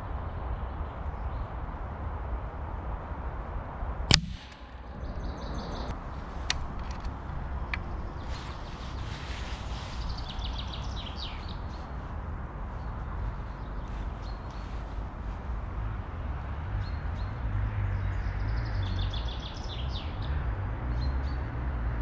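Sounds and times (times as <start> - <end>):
wind rumble: 0.0 - 22.0
air rifle shot: 4.1 - 5.4
bird chirps: 4.1 - 5.9.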